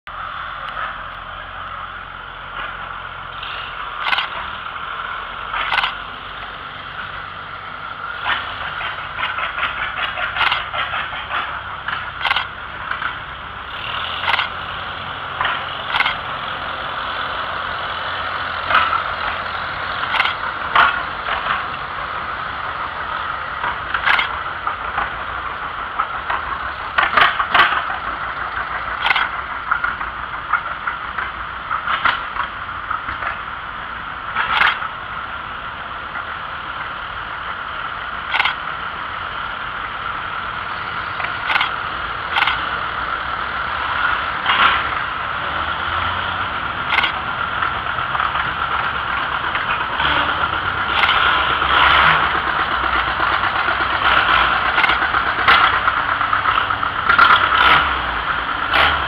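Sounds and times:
antique tractor engines running: 0:00.0 - 0:59.0
sharp irregular engine knocks: 0:03.4 - 0:04.6, 0:05.5 - 0:06.1, 0:08.2 - 0:16.4, 0:18.6 - 0:21.8, 0:23.5 - 0:33.5, 0:34.3 - 0:35.0, 0:38.3 - 0:38.7, 0:41.2 - 0:42.8, 0:46.8 - 0:58.0.

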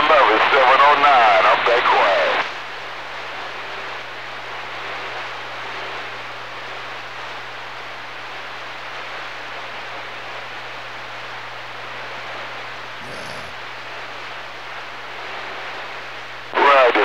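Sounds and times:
radio static hiss: 0:00.0 - 0:02.6, 0:16.5 - 0:17.0.

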